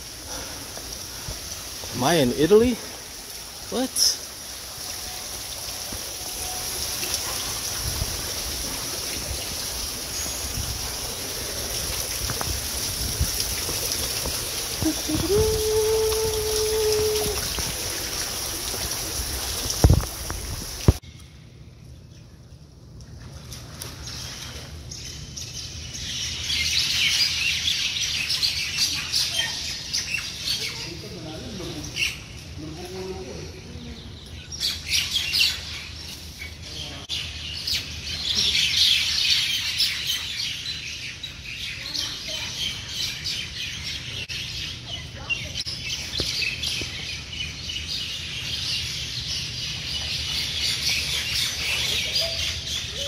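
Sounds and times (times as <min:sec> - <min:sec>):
fountain water splashing: 0:00.0 - 0:21.0
birds chirping: 0:24.9 - 0:53.0.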